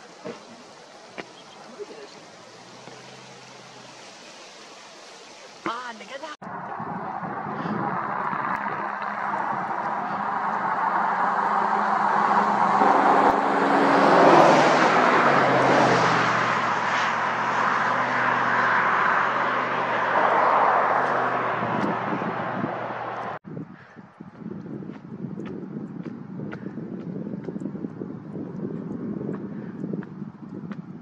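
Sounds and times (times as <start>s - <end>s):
vehicle passing by: 0.0s - 5.6s, 6.4s - 23.4s.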